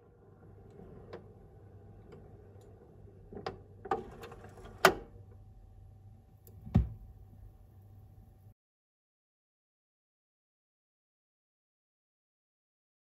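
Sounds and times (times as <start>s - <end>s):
faint motor hum: 0.0s - 8.5s
stylus setting down thump: 6.6s - 7.1s.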